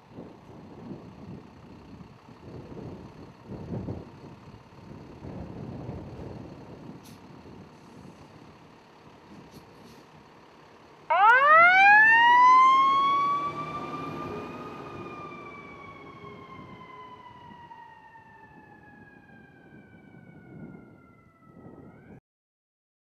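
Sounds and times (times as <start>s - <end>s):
truck engine rumbling: 0.0s - 22.1s
mechanical siren wailing: 11.1s - 22.2s.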